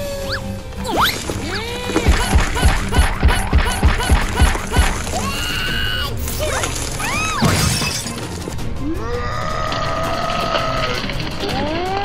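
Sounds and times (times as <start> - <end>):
cartoon whines and squeal: 0.0 - 1.2
background music: 0.0 - 12.0.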